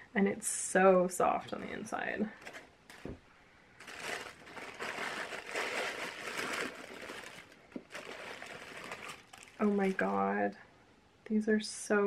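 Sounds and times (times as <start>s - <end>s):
tissue paper rustling: 3.8s - 10.3s.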